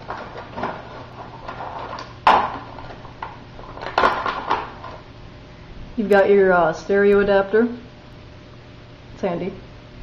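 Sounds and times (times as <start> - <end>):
plastic packaging crinkling: 0.0 - 5.0
faint electrical hum: 0.0 - 10.0.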